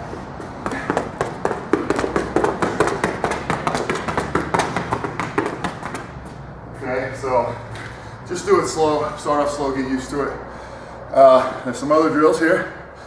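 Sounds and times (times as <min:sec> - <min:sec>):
rapid footsteps on rubber flooring: 0:00.4 - 0:06.9.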